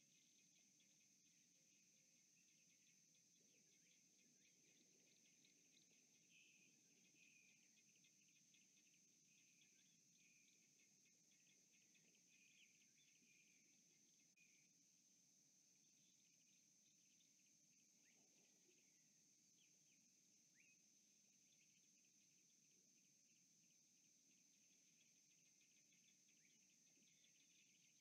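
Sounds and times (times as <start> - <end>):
insect short chirps: 15.9 - 20.8.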